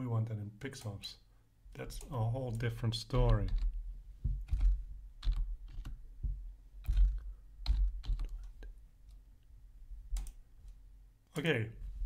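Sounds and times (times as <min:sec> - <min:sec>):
keyboard keys tapping: 0:02.0 - 0:08.7, 0:10.1 - 0:10.4.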